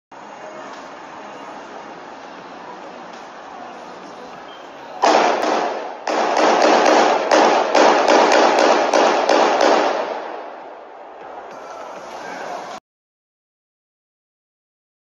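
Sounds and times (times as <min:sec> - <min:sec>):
rapid loud sharp bangs: 0:05.0 - 0:10.4.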